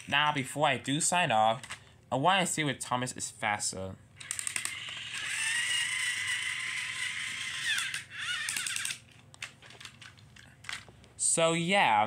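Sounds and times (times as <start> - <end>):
toy train motor whining: 4.2 - 9.2.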